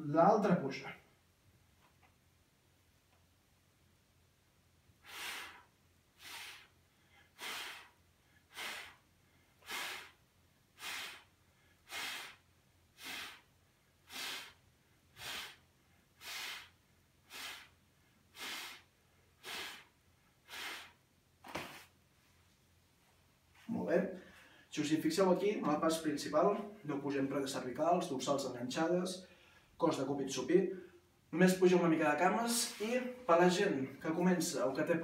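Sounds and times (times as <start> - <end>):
man breathing out in sharp puffs: 5.0 - 22.0, 24.2 - 24.7, 29.2 - 29.8.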